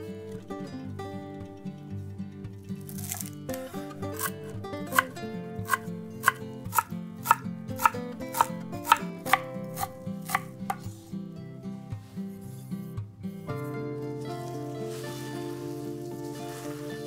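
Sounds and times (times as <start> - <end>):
knife chopping on wooden board: 4.9 - 5.1, 5.7 - 10.9.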